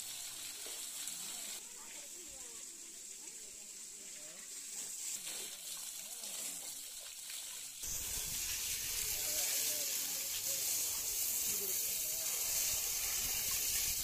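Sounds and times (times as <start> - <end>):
water spraying hiss: 0.0 - 14.0.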